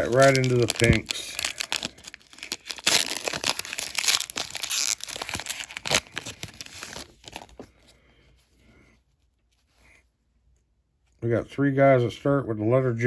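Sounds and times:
plastic wrapper tearing and crinkling: 0.0s - 7.7s.

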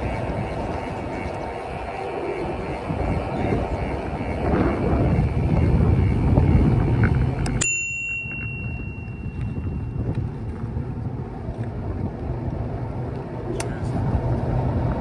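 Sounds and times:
wind on microphone: 0.0s - 15.0s
bicycle bell ringing: 7.4s - 10.2s.

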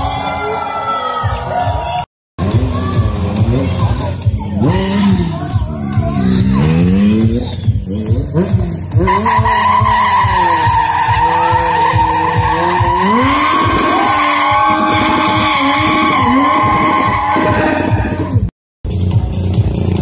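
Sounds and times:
motorcycle engine revving: 2.4s - 20.0s
tyre squeal: 9.0s - 18.5s.

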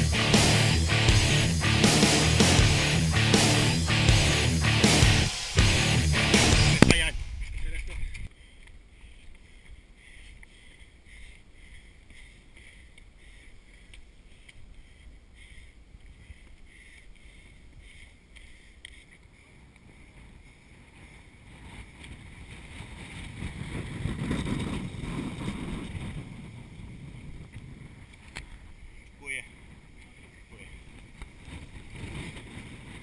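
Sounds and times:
wind rumbling on microphone: 6.7s - 33.0s.

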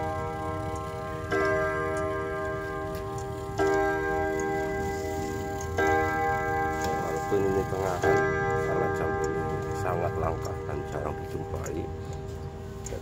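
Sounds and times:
clock striking on gong rods: 0.0s - 13.0s
clock ticking: 0.0s - 13.0s.

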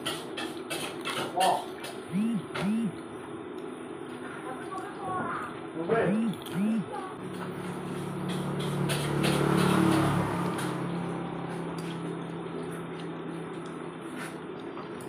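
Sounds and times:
vehicle engine passing: 7.2s - 12.6s.

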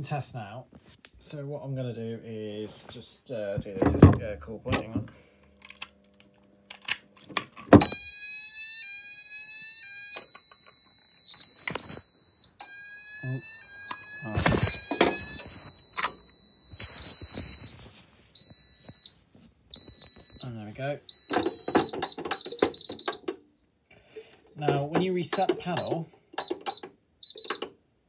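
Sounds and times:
fire alarm tone: 7.8s - 23.3s, 25.3s - 27.7s
short beeps: 11.3s - 17.8s, 25.3s - 27.6s.

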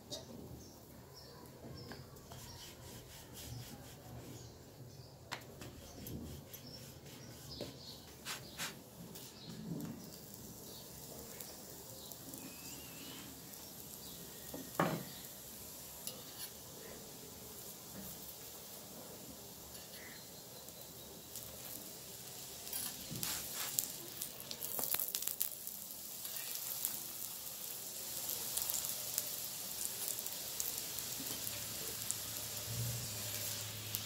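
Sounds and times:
utensils scraping a griddle: 2.2s - 4.5s, 5.6s - 9.6s, 15.9s - 17.0s, 19.7s - 20.3s, 22.6s - 25.4s, 30.1s - 32.0s.

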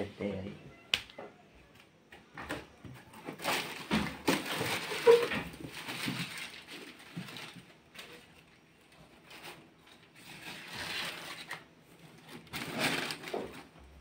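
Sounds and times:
paper and cardboard rustling: 3.1s - 14.0s.

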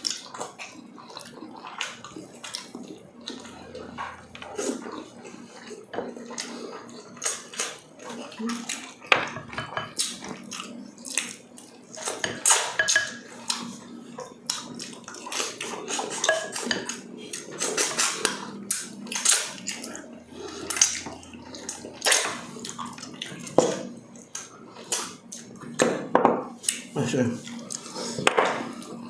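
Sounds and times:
wet chewing: 0.0s - 9.1s, 13.4s - 25.7s.

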